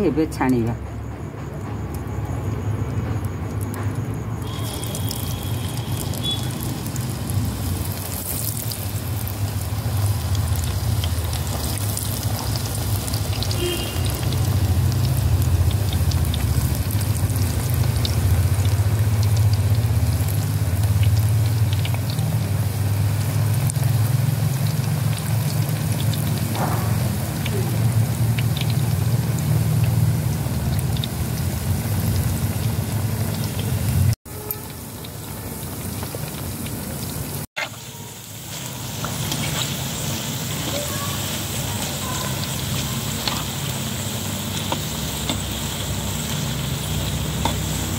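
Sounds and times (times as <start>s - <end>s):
batter sizzling in hot oil: 2.0s - 47.9s.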